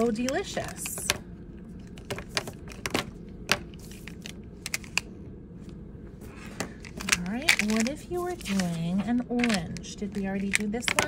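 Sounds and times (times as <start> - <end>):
plastic markers clicking together: 9.4 - 11.0.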